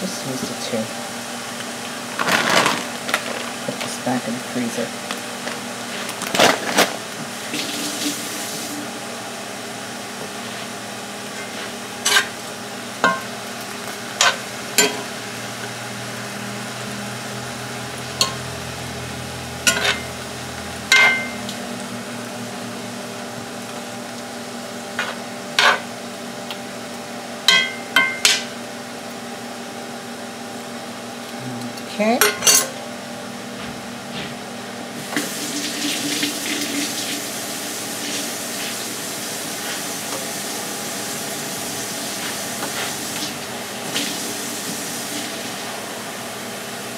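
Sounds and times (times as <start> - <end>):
pan sizzling: 10.1 - 16.3, 17.3 - 26.6, 35.0 - 46.0
metal utensils scraping skillet: 11.4 - 12.4, 19.7 - 20.1.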